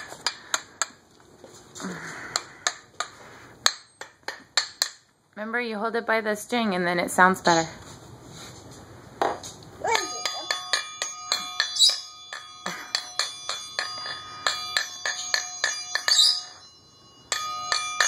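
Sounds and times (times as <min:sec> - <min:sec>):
triangle struck and ringing: 0:09.8 - 0:18.0.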